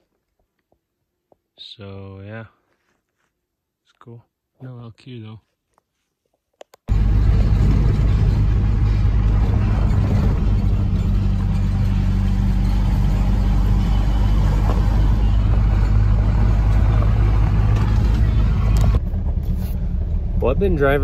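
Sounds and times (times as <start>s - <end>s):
tyres rumbling over gravel: 6.9s - 21.0s
vehicle engine drone: 6.9s - 21.0s.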